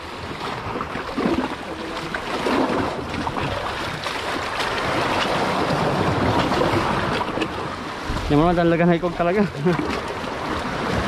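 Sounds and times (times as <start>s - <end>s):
surf washing against rocks: 0.0s - 11.0s
wind on microphone: 0.0s - 11.0s.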